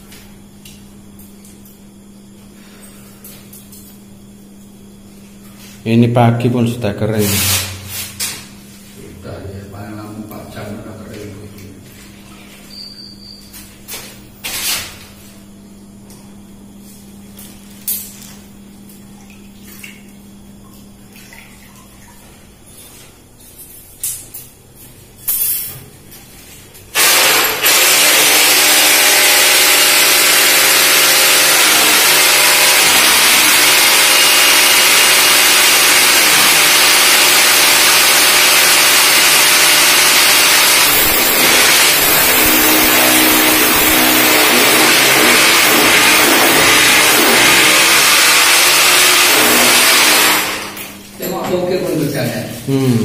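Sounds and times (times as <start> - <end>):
electric drill boring into tile: 27.0 - 50.9.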